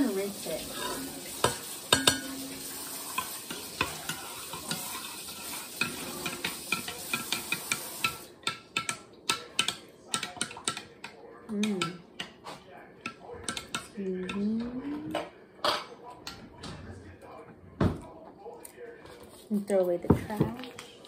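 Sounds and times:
kitchen tap running: 0.0s - 10.8s
dishware clinking: 0.7s - 11.0s, 13.0s - 16.9s.

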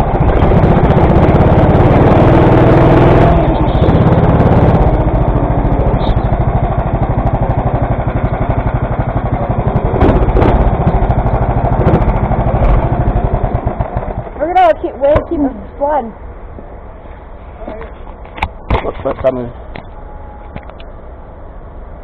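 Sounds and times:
go-kart engine: 0.0s - 17.2s.

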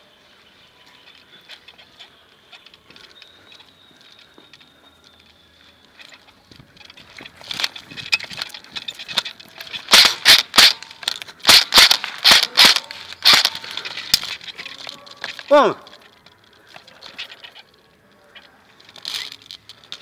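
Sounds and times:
rustling: 0.3s - 20.0s
airsoft rifle shots: 9.9s - 13.8s.

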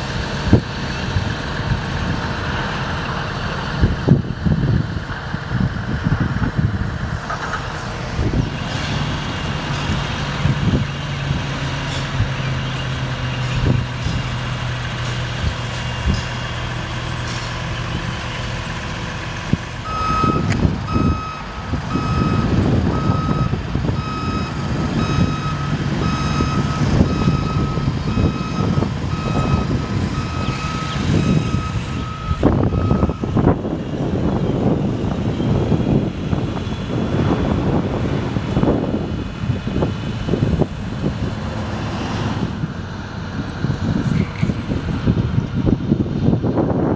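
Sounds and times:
truck engine humming: 0.0s - 46.9s
warning alarm beeping: 19.9s - 33.2s.

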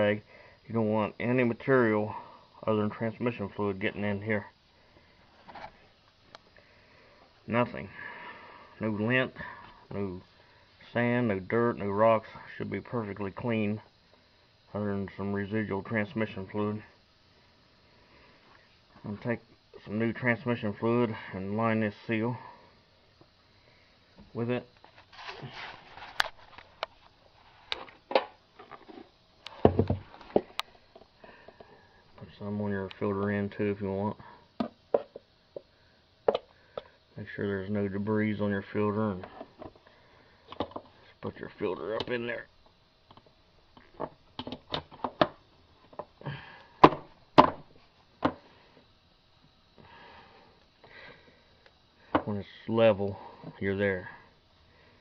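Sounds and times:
dull thumps: 29.6s - 30.5s.

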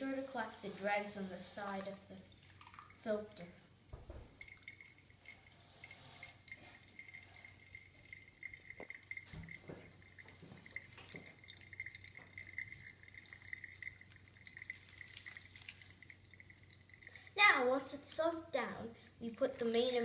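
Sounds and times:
coffee dripping into glass carafe: 1.7s - 17.4s.

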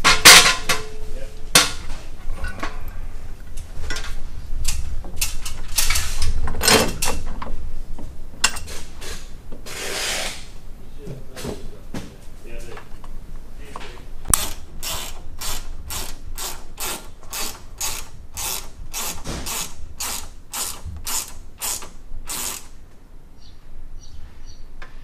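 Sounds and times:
ratchet wrench clicking: 14.3s - 22.7s.

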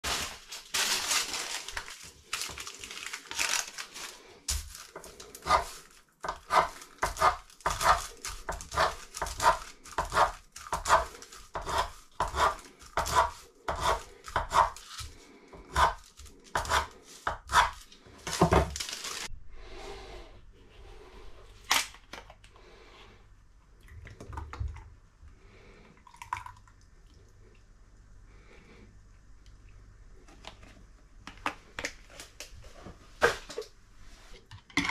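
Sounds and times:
knife tapping through parchment: 4.5s - 18.6s.

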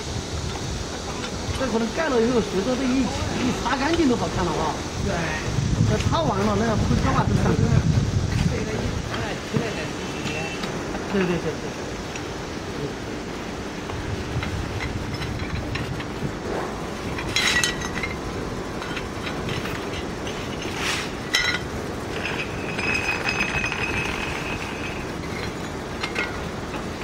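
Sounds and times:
roof tiles clinking: 13.8s - 27.0s.

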